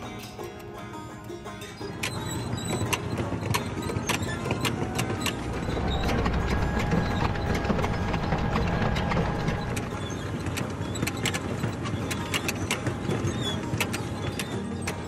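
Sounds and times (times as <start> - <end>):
feed belts clicking and clattering: 1.6 - 15.0
low mechanical rumble: 1.8 - 14.6.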